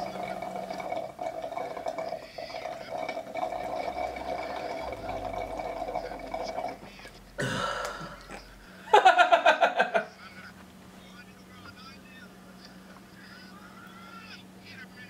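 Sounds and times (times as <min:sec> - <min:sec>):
loud pulsing burp: 0:00.0 - 0:06.8, 0:07.4 - 0:08.6
sucking through a straw: 0:00.0 - 0:06.9.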